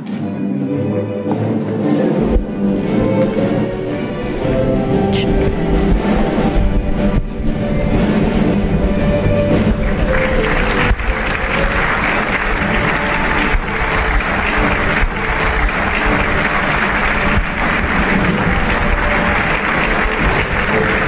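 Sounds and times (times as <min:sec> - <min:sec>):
background music: 0:00.0 - 0:21.0
crowd applauding: 0:09.4 - 0:21.0.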